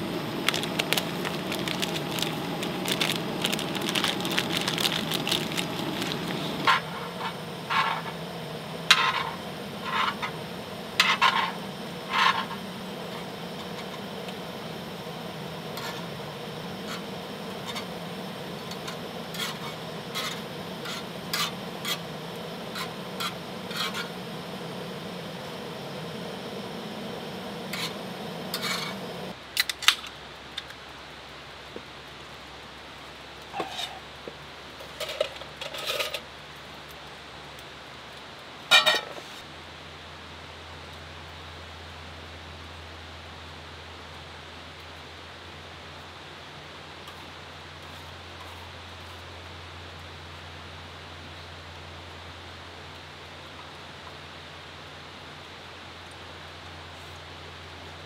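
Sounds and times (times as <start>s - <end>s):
sauce bubbling and sizzling: 0.0s - 29.4s
metal tongs scraping and tapping pan: 38.7s - 39.2s.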